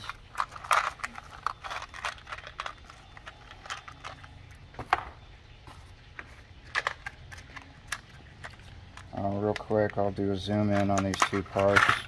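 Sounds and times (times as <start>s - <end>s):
low steady hum: 0.0s - 12.0s
clicks of handling wires and connectors: 10.6s - 12.0s.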